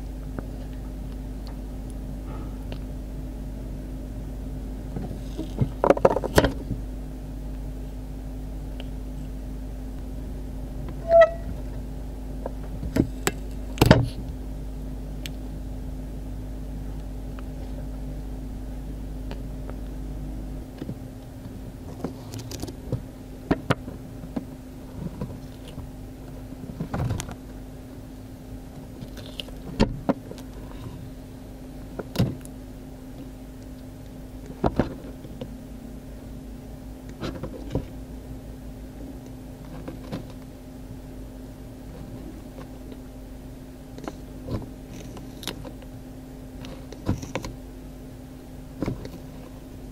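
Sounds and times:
low steady hum: 0:00.0 - 0:49.9
tortoise crunching cucumber: 0:25.2 - 0:25.9, 0:28.9 - 0:30.9, 0:44.0 - 0:45.9.

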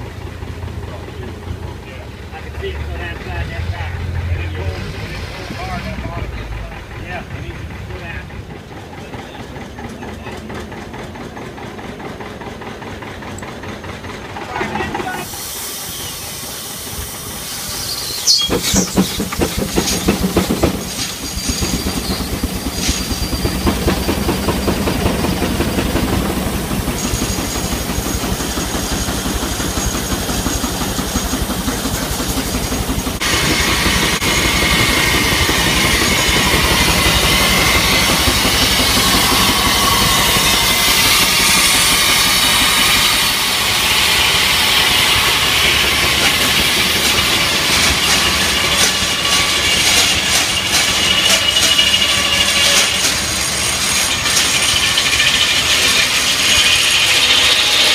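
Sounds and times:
steam engine chuffing: 0:00.0 - 0:57.9
steam hiss: 0:04.5 - 0:06.3, 0:15.0 - 0:57.9
loud high-pitched noise: 0:33.1 - 0:57.9.

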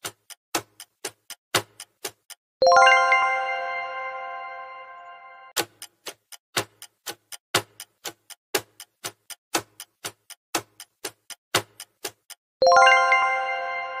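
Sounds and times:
clock ticking: 0:00.0 - 0:03.0, 0:05.5 - 0:13.0
chime: 0:02.6 - 0:05.6, 0:12.6 - 0:14.0.

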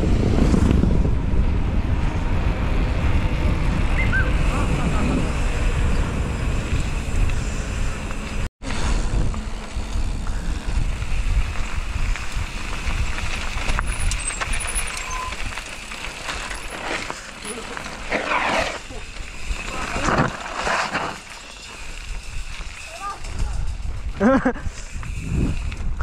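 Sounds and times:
wind buffeting microphone: 0:00.0 - 0:16.2, 0:21.8 - 0:26.0
bike tyres rolling on gravel: 0:00.0 - 0:26.0.

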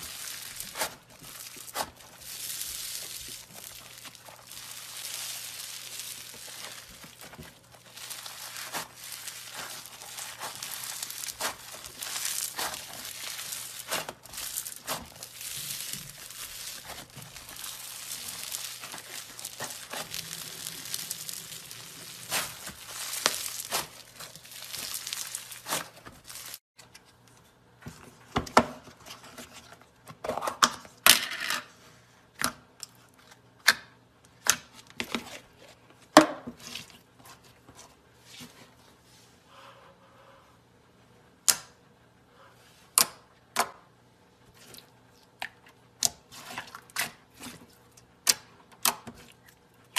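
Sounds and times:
crunchy slime crackling: 0:00.0 - 0:26.6.

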